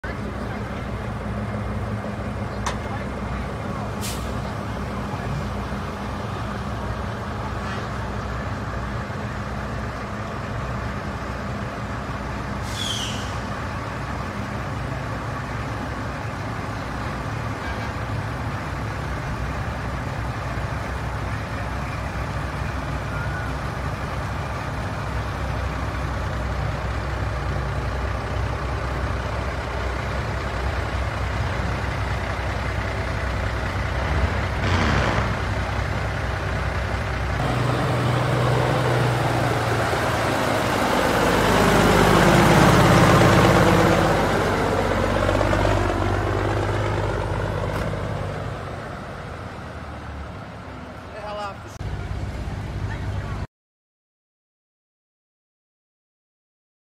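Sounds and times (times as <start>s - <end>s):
truck engines driving by: 0.0s - 53.5s
air brake hiss: 4.0s - 4.4s, 12.6s - 13.5s.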